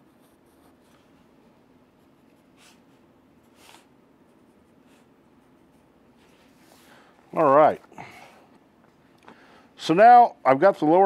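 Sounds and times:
pencil scratching on paper: 0.0s - 1.1s.

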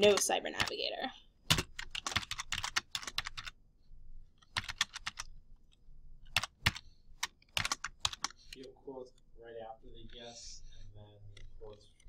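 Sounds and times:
typing on computer keyboard: 0.0s - 0.7s, 1.5s - 3.5s, 4.5s - 5.3s, 6.3s - 8.4s.

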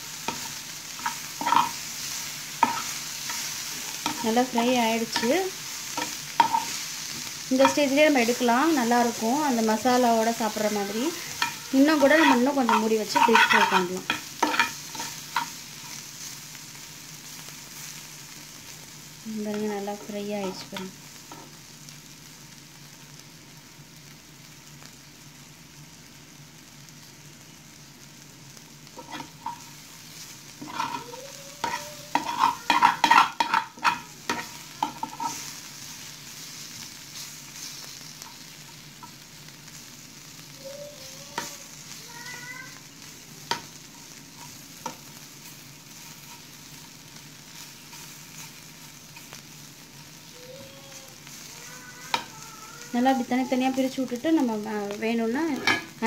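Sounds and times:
gourd slices sizzling in pan: 0.0s - 56.0s
utensil scraping and clinking pan: 0.3s - 1.8s, 11.3s - 15.6s, 30.6s - 35.5s.

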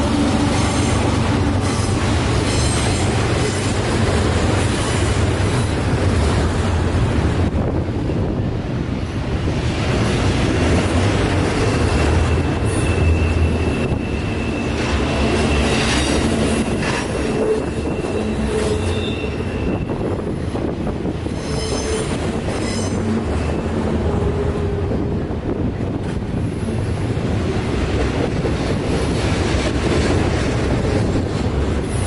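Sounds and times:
train wheels rolling on rails: 0.0s - 32.0s
wheel flange squeal: 11.7s - 20.0s, 21.4s - 23.1s.

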